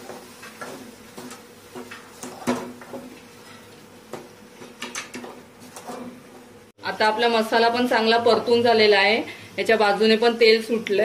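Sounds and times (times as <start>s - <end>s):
metal spoon scraping a pan: 0.0s - 3.8s
paste frying in oil: 0.0s - 6.6s.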